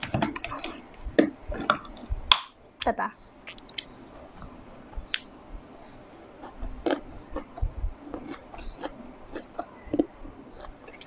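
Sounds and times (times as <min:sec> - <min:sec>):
person chewing grape: 0:00.1 - 0:02.4, 0:06.3 - 0:11.0.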